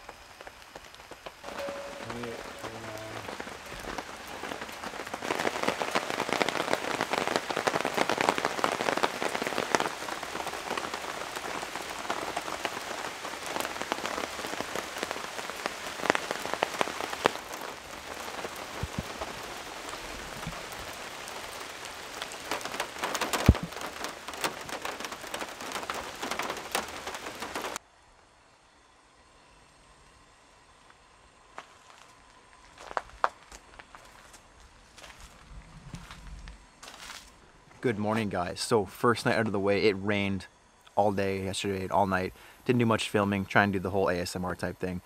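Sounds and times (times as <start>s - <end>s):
steady rain: 0.0s - 28.8s, 29.4s - 45.0s.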